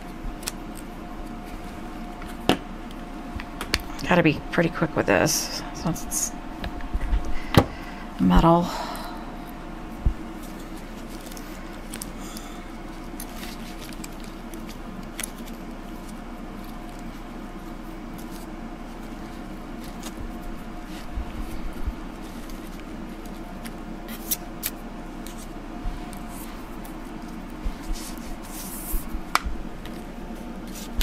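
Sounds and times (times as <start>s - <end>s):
steady low hum: 0.0s - 31.0s
paper rustling: 10.4s - 31.0s.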